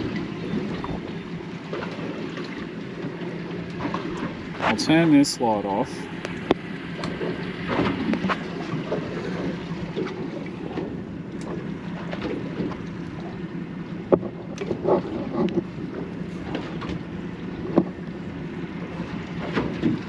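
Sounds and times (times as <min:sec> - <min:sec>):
wind on microphone: 0:00.0 - 0:02.4
outboard motor running: 0:00.0 - 0:20.0
water noise: 0:00.0 - 0:20.0.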